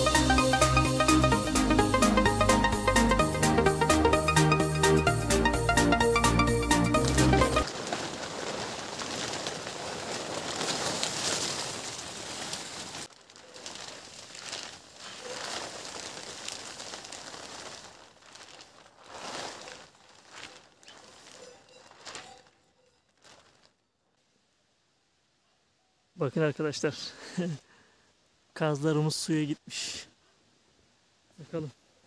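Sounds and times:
plastic tarp rustling: 0:06.2 - 0:23.8.

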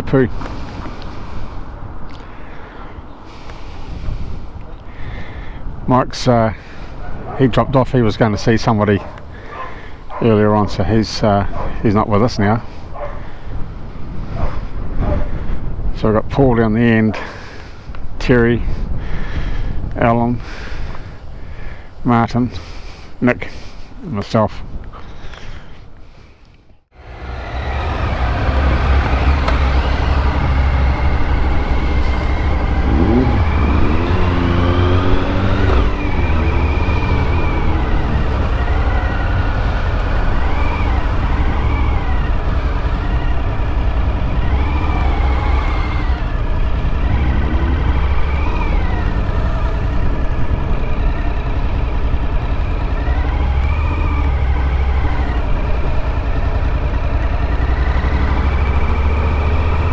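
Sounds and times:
wind noise rumble: 0:00.0 - 0:08.2, 0:11.4 - 0:22.1
motorcycle engine revving: 0:26.9 - 0:59.9.

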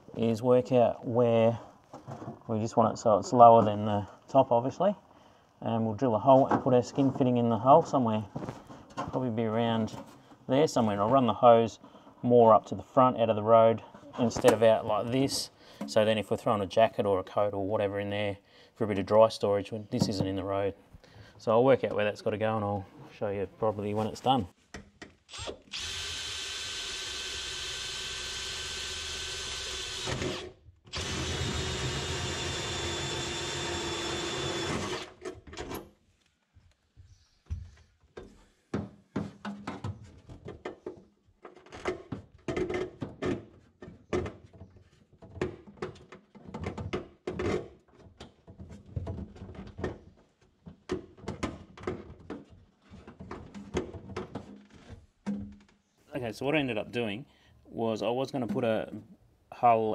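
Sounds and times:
cordless drill boring through metal: 0:25.3 - 0:35.2.

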